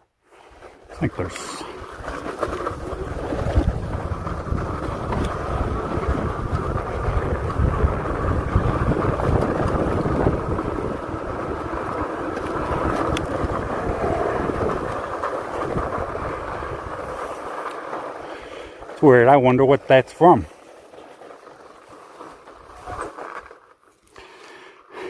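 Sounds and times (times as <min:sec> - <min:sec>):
tires rumbling over sand: 0:00.6 - 0:23.6
wind rushing over microphone: 0:02.6 - 0:17.4.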